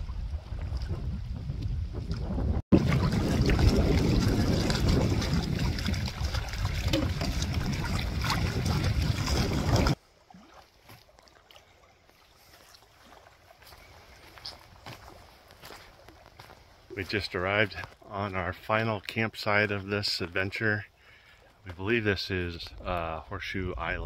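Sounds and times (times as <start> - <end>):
wind buffeting microphone: 0.0 - 10.0
outdoor ambience: 0.0 - 24.0.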